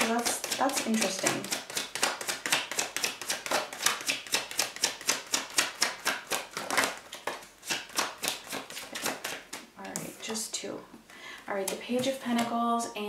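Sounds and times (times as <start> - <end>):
cards being shuffled: 0.0 - 10.1.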